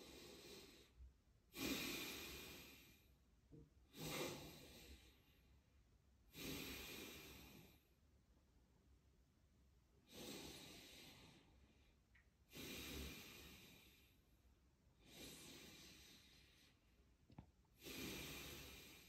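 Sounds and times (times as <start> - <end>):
man breathing deeply: 0.0 - 3.2, 3.9 - 5.6, 6.3 - 8.0, 10.0 - 14.3, 15.0 - 17.0, 17.8 - 19.0.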